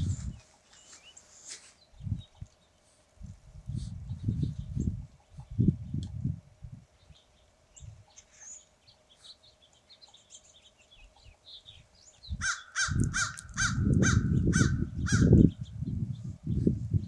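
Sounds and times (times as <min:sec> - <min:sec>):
low buffeting rumble: 0:00.0 - 0:00.6, 0:01.9 - 0:09.7, 0:10.5 - 0:17.0
small birds chirping: 0:00.0 - 0:17.0
crow cawing harshly: 0:12.4 - 0:15.4.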